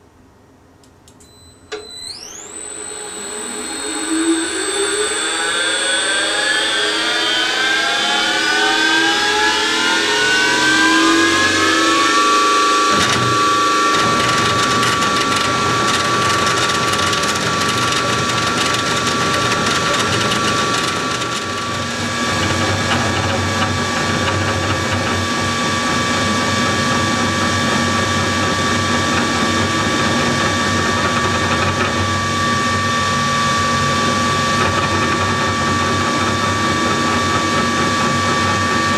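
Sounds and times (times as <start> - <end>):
mill motor whine: 1.7 - 38.9
rattling wood cutting noise: 12.8 - 38.9.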